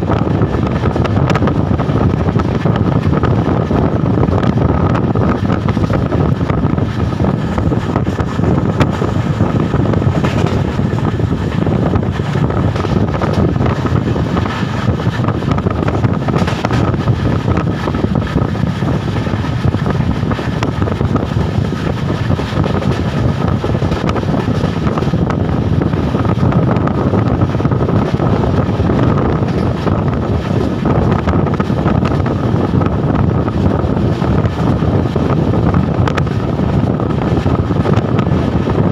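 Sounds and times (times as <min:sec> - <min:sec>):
passenger train running: 0:00.0 - 0:38.9
wind rushing on microphone: 0:00.0 - 0:38.9.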